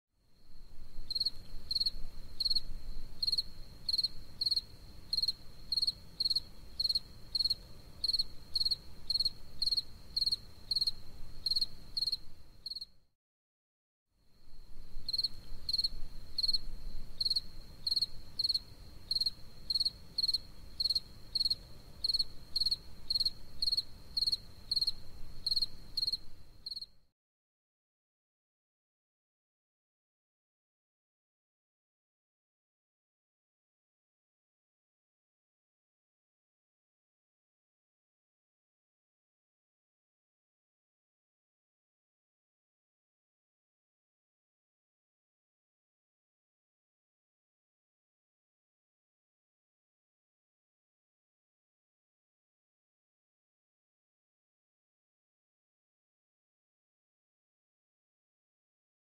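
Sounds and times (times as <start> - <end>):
cricket chirping: 0.4 - 13.0, 14.3 - 27.0.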